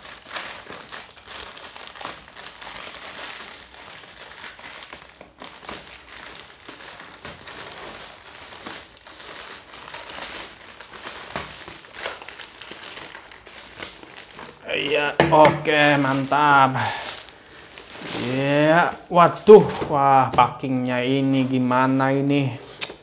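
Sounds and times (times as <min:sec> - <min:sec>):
plastic bag crinkling: 0:00.0 - 0:23.0.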